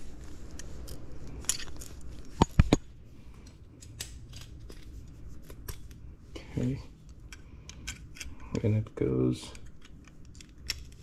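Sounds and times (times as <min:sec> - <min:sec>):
metal parts clicking and knocking: 0:09.5 - 0:11.0.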